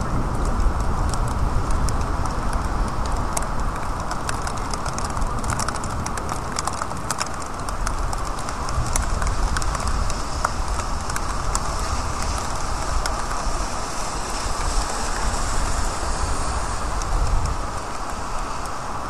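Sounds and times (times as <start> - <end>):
low steady rumble: 0.0 - 19.0
steady rain falling: 0.0 - 19.0
drops ticking on a surface: 0.2 - 18.9.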